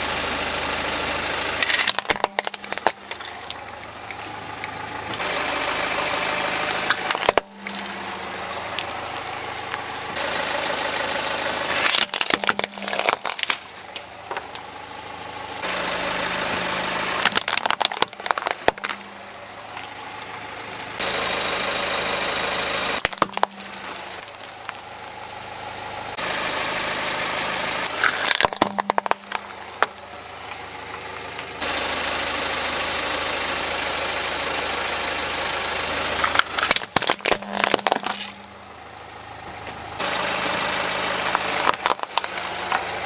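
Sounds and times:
car engine idling: 0:00.0 - 0:43.0
toys crushing under tyre: 0:01.6 - 0:05.3, 0:06.7 - 0:09.0, 0:11.7 - 0:14.7, 0:17.1 - 0:20.4, 0:23.0 - 0:24.9, 0:27.9 - 0:30.0, 0:36.1 - 0:38.6, 0:41.2 - 0:42.9.

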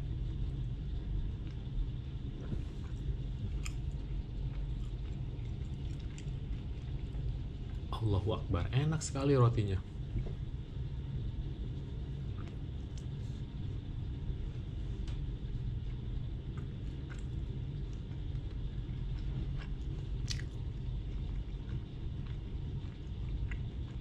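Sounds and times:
low rumble: 0:00.0 - 0:24.0
person chewing bread: 0:01.0 - 0:07.9, 0:12.0 - 0:24.0.

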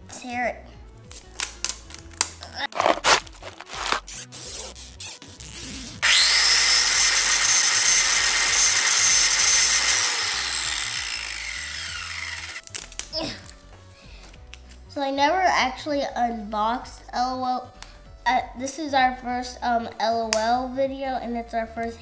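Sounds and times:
plastic wrapping crackling and tearing: 0:01.0 - 0:05.6, 0:12.2 - 0:14.8.

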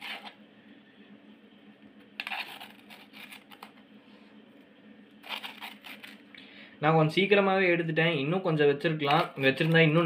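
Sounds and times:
faint steady hum: 0:00.0 - 0:10.0
spoon scraping icy slush: 0:02.2 - 0:03.6, 0:05.2 - 0:06.2.

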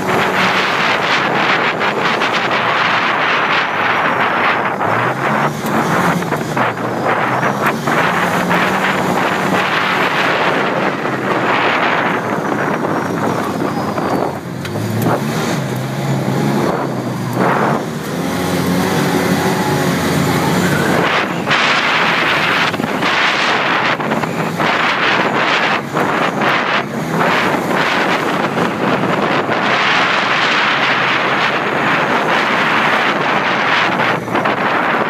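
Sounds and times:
vehicle engine under load: 0:00.0 - 0:35.0
wind buffeting microphone: 0:00.0 - 0:35.0.

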